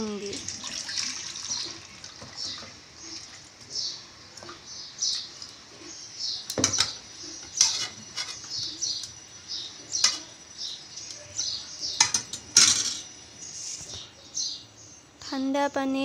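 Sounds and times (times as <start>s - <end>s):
bird chirping: 1.5s - 12.4s, 13.0s - 15.1s
metal spoon clinking on pot: 12.0s - 13.1s.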